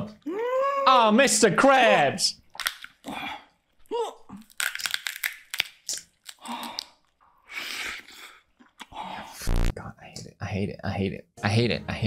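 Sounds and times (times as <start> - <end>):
crunching and chewing crab: 2.5 - 3.1, 4.4 - 7.2.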